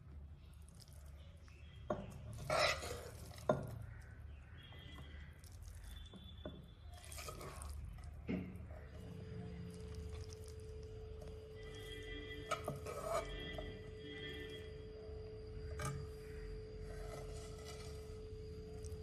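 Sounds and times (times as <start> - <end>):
low steady hum: 0.0 - 19.0
tongs scraping pan: 2.1 - 3.6, 7.0 - 8.0, 11.7 - 14.3, 15.6 - 18.9.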